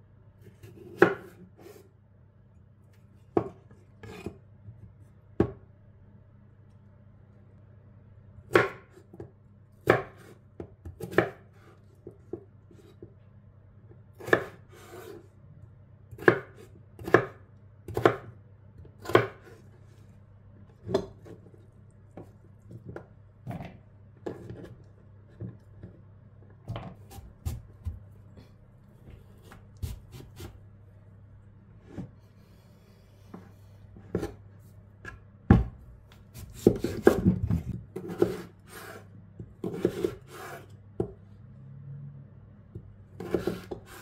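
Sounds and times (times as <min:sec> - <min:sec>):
faint low hum: 0:00.0 - 0:38.4, 0:39.1 - 0:43.6
knife chopping on wooden board: 0:00.6 - 0:01.8, 0:08.5 - 0:13.0, 0:14.2 - 0:15.2, 0:16.1 - 0:18.4, 0:19.0 - 0:19.6, 0:20.8 - 0:21.4, 0:26.7 - 0:28.0, 0:29.1 - 0:30.6, 0:35.5 - 0:41.1, 0:43.2 - 0:44.0.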